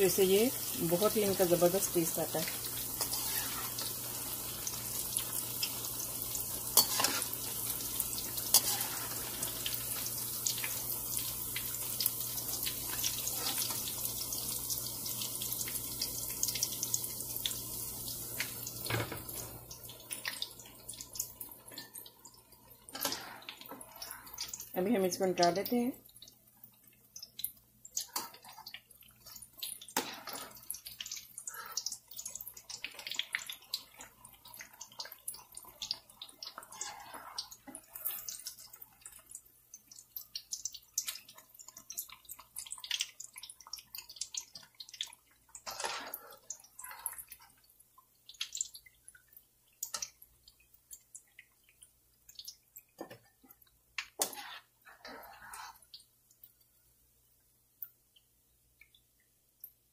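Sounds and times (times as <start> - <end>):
eggplant sizzling in hot oil: 0.0 - 57.1
metal spoon scraping pan: 3.0 - 3.9, 6.8 - 7.4, 8.5 - 9.6, 45.6 - 47.2, 54.2 - 55.8.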